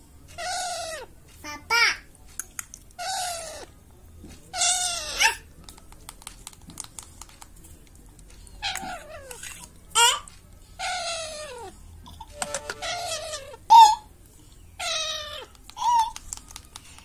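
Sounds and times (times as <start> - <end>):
parakeet begging calls: 12.4 - 14.0.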